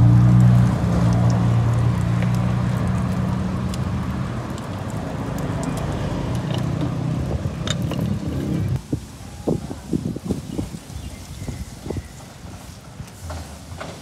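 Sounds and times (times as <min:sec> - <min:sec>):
vehicle engine humming: 0:00.0 - 0:08.8
continuous hiss: 0:08.7 - 0:14.0.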